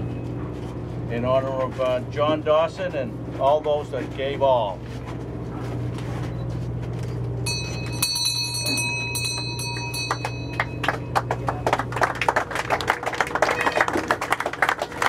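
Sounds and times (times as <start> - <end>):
boat engine low hum: 0.0 - 15.0
bell ringing: 7.4 - 11.5.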